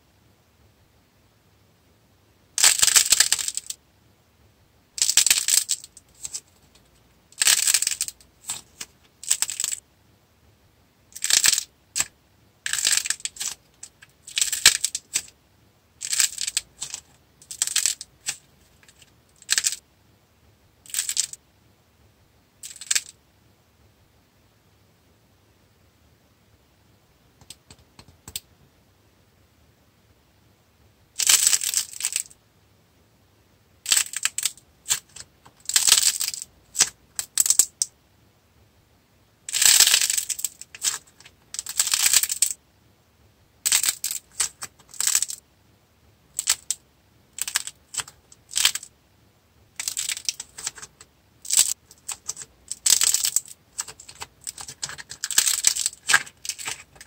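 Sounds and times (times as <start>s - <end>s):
clay crackling and crunching: 5.0s - 9.8s, 11.2s - 15.4s, 16.0s - 19.8s, 20.8s - 21.4s, 39.5s - 42.6s, 43.6s - 45.4s, 47.4s - 48.9s, 49.8s - 57.0s
faint clicks: 27.4s - 28.5s.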